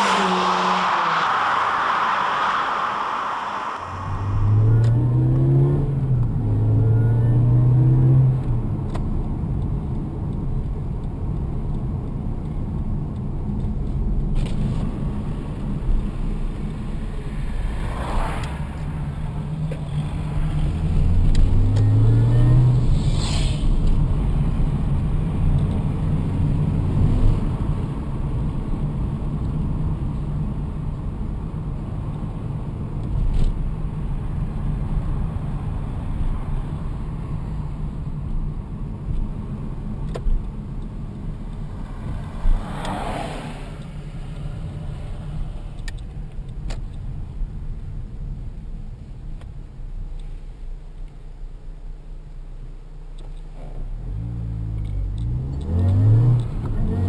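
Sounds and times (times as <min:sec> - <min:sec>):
brief sharp noises: 0:00.0 - 0:05.6
car engine revving: 0:00.0 - 0:08.2.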